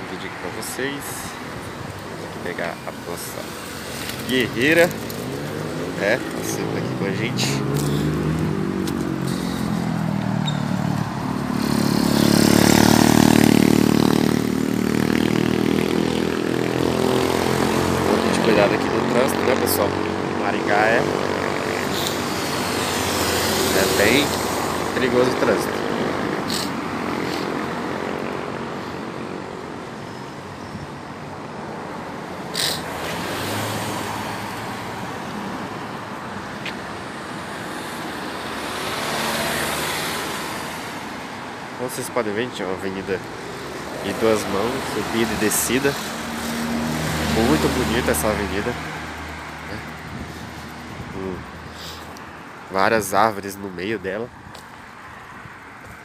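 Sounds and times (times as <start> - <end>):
street traffic noise: 0.0 - 56.0
vehicle engine passing by: 3.1 - 28.1, 32.6 - 36.1, 37.6 - 41.2, 42.8 - 52.2.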